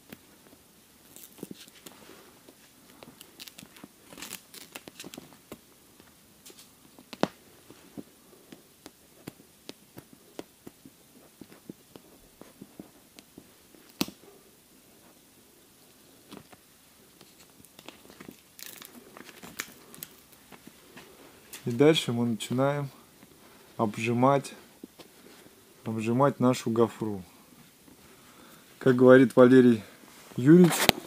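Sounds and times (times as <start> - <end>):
tape crackling and rustling: 0.0 - 24.0, 27.6 - 31.0
backing film peeling off tape: 1.0 - 2.0, 2.9 - 5.6, 17.2 - 20.4
tape snap: 6.4 - 7.4, 13.2 - 14.2.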